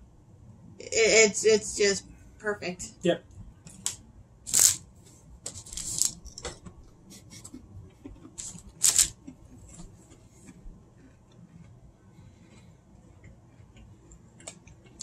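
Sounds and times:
objects being handled: 3.6s - 7.0s, 8.2s - 10.7s.

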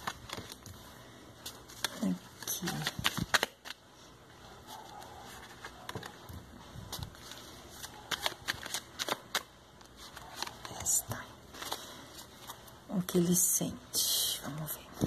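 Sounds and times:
cards flicking and tapping: 0.0s - 3.8s, 5.0s - 10.9s
cards rustling: 0.0s - 12.8s.

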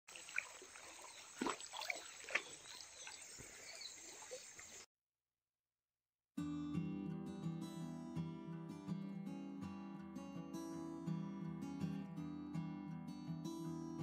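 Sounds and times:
stream running water: 0.0s - 4.9s
bird chirps: 1.0s - 4.8s
strummed acoustic guitar music: 6.4s - 14.0s.

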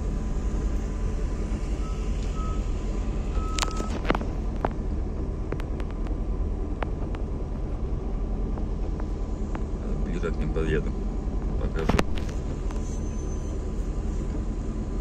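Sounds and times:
car engine idling: 0.0s - 15.0s
short beeps: 1.8s - 2.7s, 3.4s - 4.0s.

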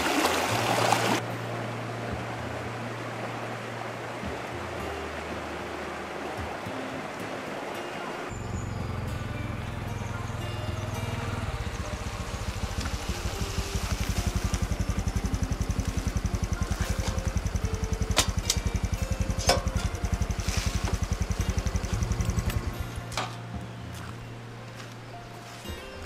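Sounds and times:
motorcycle engine idling: 8.3s - 23.3s.

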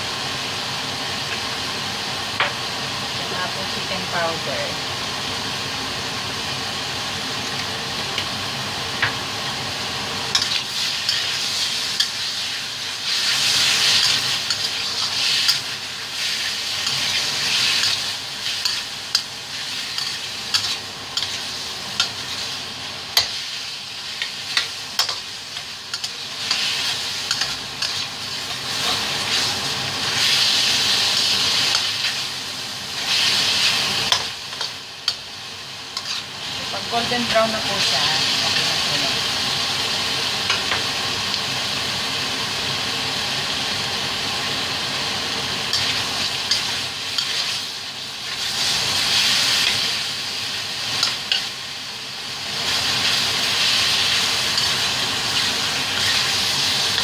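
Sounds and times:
chicken sizzling in a wok: 0.0s - 57.0s
spatula scraping a wok: 10.3s - 32.2s, 35.9s - 36.4s, 45.7s - 47.7s.

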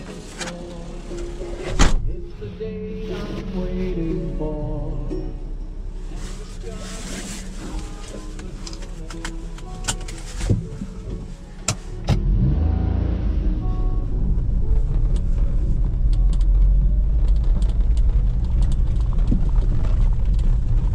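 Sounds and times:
van engine revving: 0.0s - 20.9s
tyres on rough dirt track: 6.4s - 20.9s.

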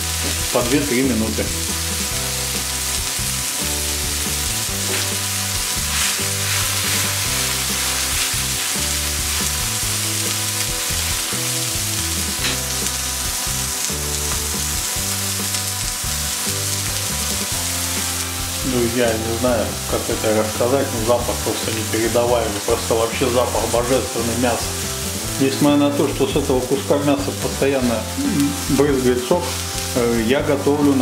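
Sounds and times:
meat sizzling in a pan: 0.0s - 31.0s
oil spitting and popping: 1.9s - 14.6s.

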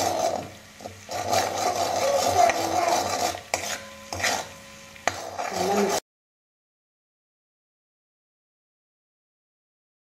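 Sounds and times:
butter sizzling in pan: 0.0s - 6.0s
wooden spatula scraping pan: 0.0s - 6.0s
spatula knocking on pan: 2.3s - 5.9s.

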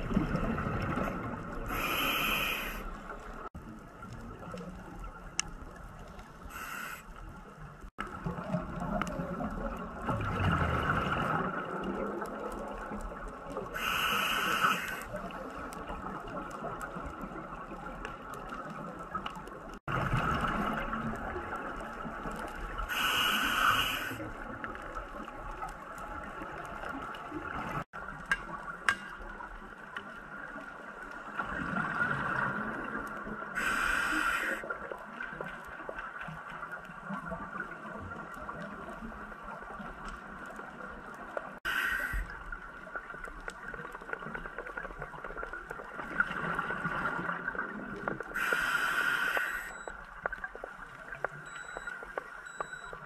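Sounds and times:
exhaled bubbles rumbling underwater: 0.0s - 53.0s
regulator inhalation hiss: 1.7s - 2.9s, 6.5s - 7.1s, 13.8s - 15.0s, 22.9s - 24.2s, 33.6s - 34.6s, 41.7s - 42.3s, 48.4s - 49.8s.

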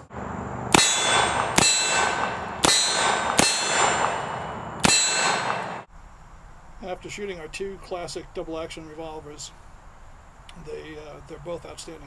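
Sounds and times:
bullet clanging on steel target: 0.7s - 5.9s
revolver shots: 0.7s - 5.9s
steel plate ringing: 0.7s - 5.9s.

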